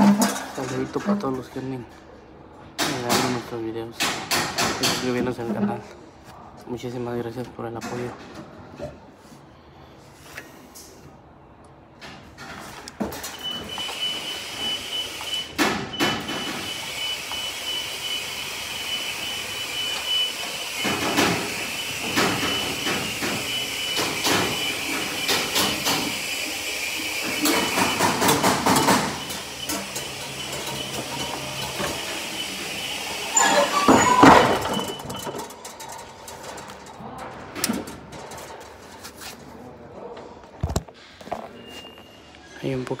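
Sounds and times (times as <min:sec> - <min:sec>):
high steady alarm beeping: 0:13.4 - 0:25.8.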